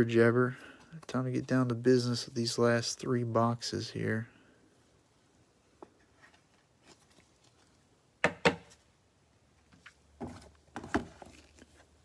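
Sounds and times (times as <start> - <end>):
boxes thudding and scraping: 10.2 - 11.5.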